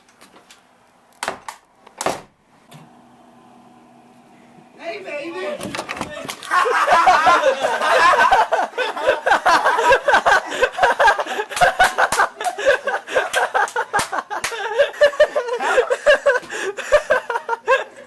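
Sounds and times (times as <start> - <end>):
people laughing and snickering: 6.1 - 18.0.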